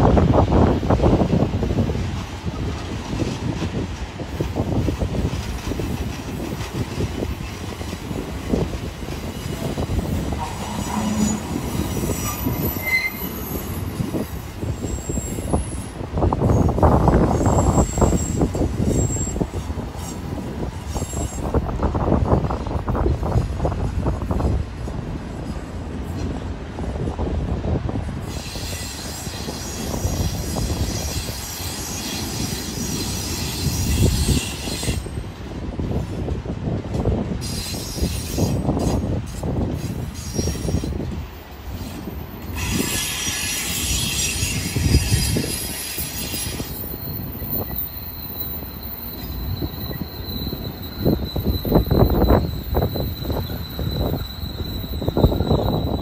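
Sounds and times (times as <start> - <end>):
freight train rumbling past: 0.0 - 56.0
high-pitched wheel squeal: 9.6 - 16.7, 17.3 - 20.2, 28.3 - 35.2, 40.0 - 41.0, 42.5 - 56.0.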